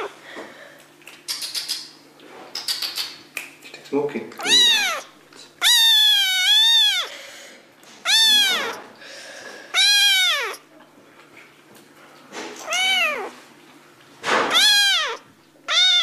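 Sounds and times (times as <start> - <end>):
kitten meowing: 4.4 - 7.2, 8.0 - 8.8, 9.7 - 10.6, 12.6 - 13.4, 14.5 - 16.0.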